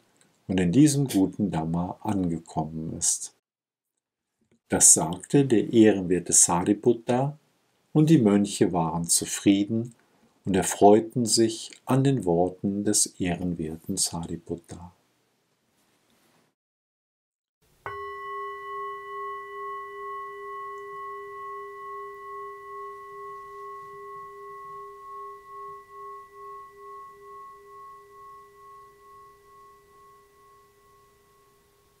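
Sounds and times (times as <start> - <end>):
singing bowl ringing: 17.8 - 32.0.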